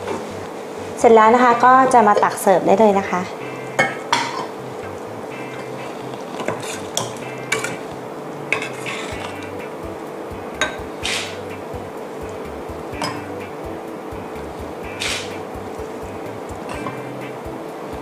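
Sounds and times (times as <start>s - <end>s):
ladle clinking against pot: 3.8s - 4.6s, 13.0s - 13.3s.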